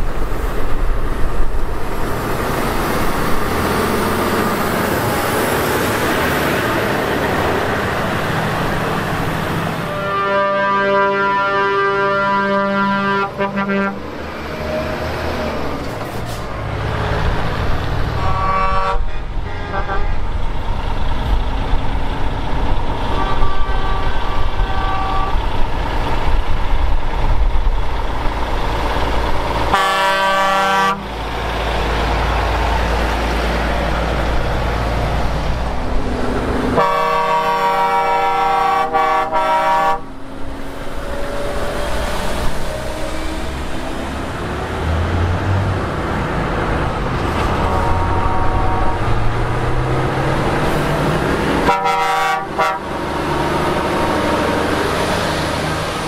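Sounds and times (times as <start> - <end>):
diesel engines rumbling: 0.0 - 56.0
truck air horns: 9.8 - 14.1, 18.1 - 20.3, 23.0 - 25.6, 29.6 - 31.1, 36.7 - 40.2, 47.3 - 49.4, 51.6 - 53.2.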